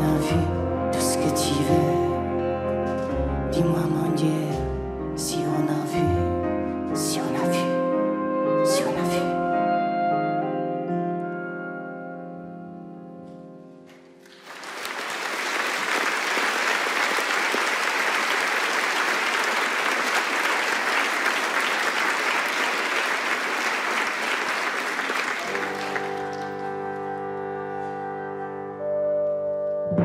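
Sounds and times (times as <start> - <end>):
audience applauding: 14.2 - 27.0.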